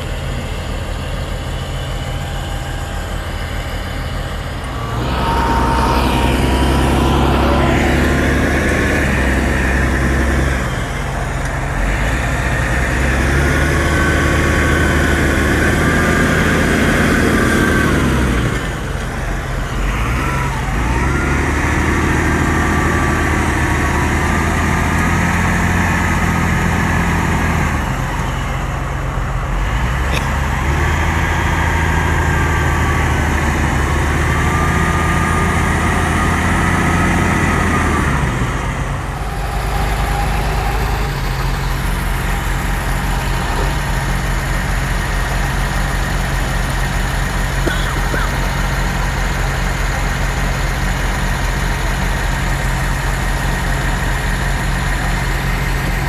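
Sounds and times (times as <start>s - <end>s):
tractor diesel engine labouring: 0.0s - 56.0s.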